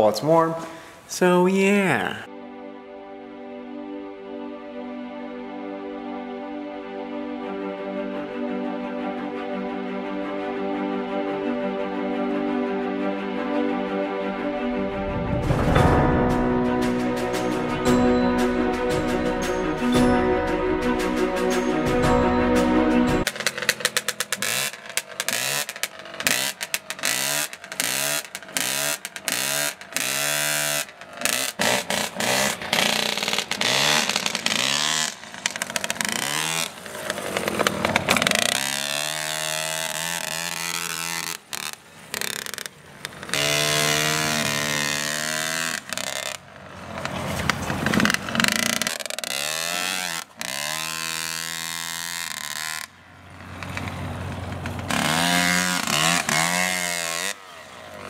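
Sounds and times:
small dirt bike engine revving: 23.2 - 58.0.

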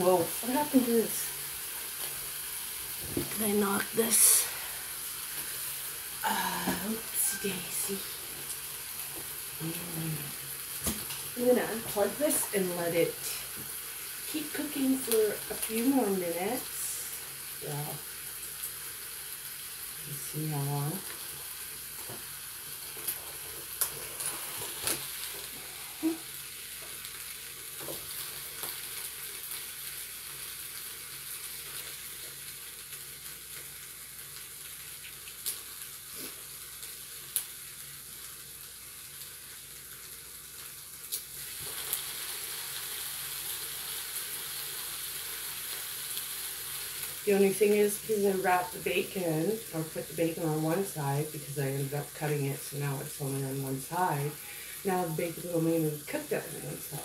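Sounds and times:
grease sizzling in waffle iron: 0.0 - 57.0
grease popping and crackling: 8.4 - 12.4, 21.9 - 30.0, 34.3 - 37.6.

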